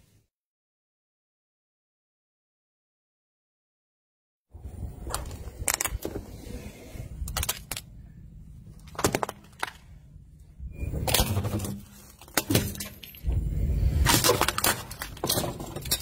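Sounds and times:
objects cracking and crunching: 7.2 - 7.9, 8.7 - 10.0, 11.1 - 16.0.

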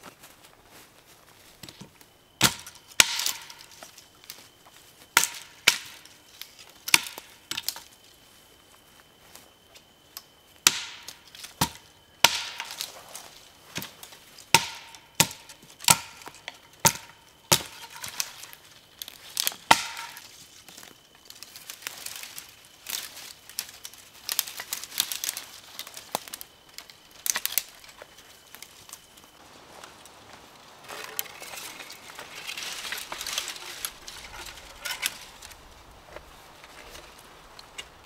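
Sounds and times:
hatchet striking branches: 2.4 - 3.8, 5.1 - 6.1, 6.9 - 7.8, 10.6 - 12.9, 14.5 - 18.6, 19.4 - 20.2
dry sticks snapping: 2.4 - 4.4, 5.2 - 7.9, 10.2 - 12.9, 13.8 - 29.4, 30.9 - 38.0.

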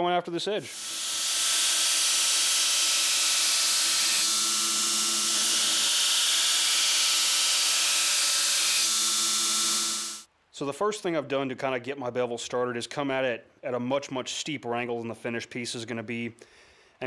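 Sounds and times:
grinder motor tone: 0.7 - 10.2
belt grinder grinding steel: 0.7 - 10.3.

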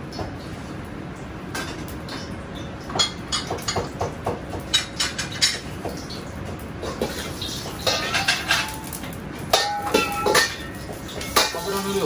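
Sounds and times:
metal ladle clinking against wok: 9.5 - 11.7.

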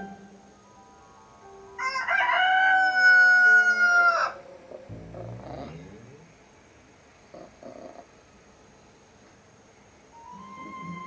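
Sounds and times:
rooster crowing: 1.8 - 4.4
low rumble: 4.9 - 6.3.

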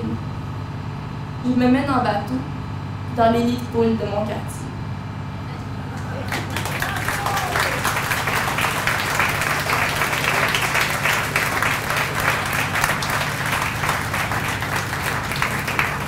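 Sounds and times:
steady low hum: 0.0 - 16.0
audience applauding: 5.9 - 16.0.

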